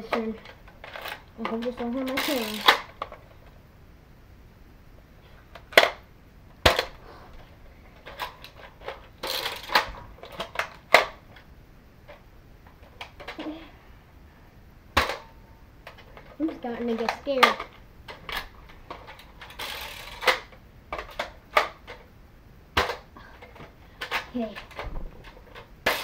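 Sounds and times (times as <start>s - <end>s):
toy blaster plastic clicks: 0.9s - 3.0s.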